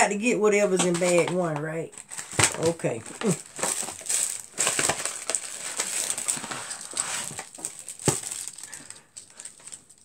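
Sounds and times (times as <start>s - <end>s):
bag rustling: 2.0s - 10.0s.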